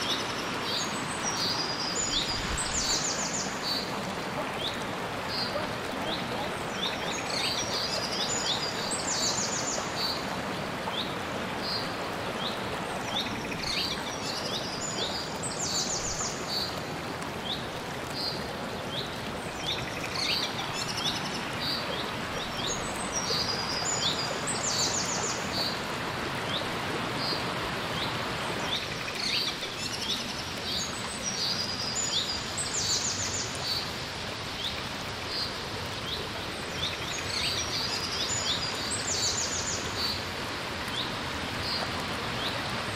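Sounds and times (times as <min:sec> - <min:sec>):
stream running over rocks: 0:00.0 - 0:42.9.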